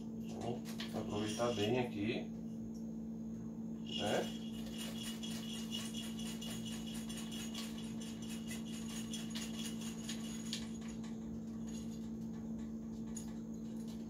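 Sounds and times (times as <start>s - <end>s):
steady low hum: 0.0s - 14.0s
coffee beans rattling into sieve: 3.8s - 10.9s.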